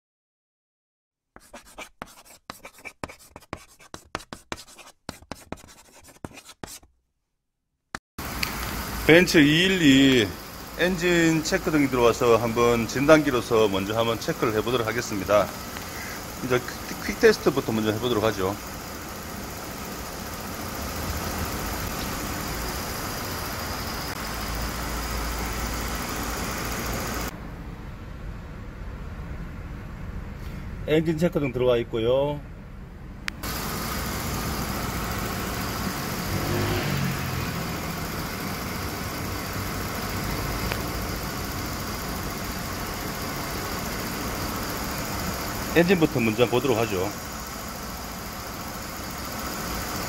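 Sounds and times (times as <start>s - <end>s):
chalk scratching on a blackboard: 1.4s - 6.9s
car engine idling: 8.2s - 27.3s, 33.4s - 50.0s.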